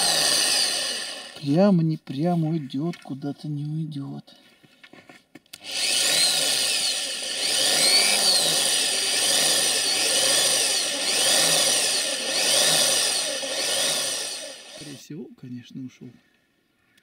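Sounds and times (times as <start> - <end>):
electric drill whining: 0.0 - 1.6, 5.6 - 15.0.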